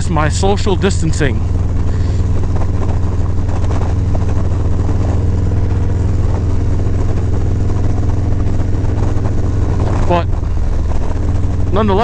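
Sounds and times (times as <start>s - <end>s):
motorcycle engine droning: 0.0s - 12.0s.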